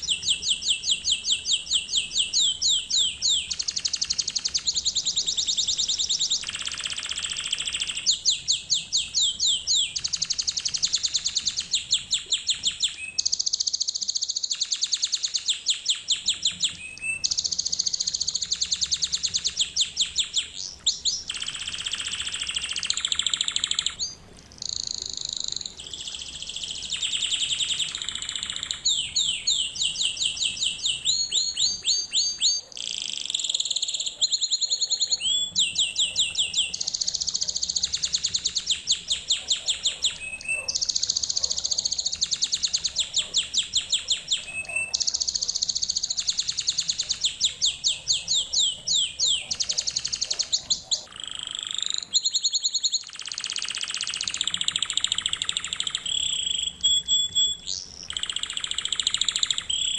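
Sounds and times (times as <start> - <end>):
canary singing rapid trills: 0.0 - 59.9.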